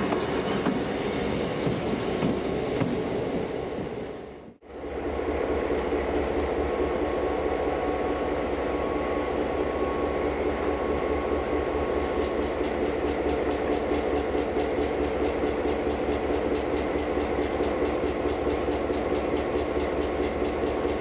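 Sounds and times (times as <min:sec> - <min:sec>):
diesel locomotive engine idling: 0:04.6 - 0:21.0.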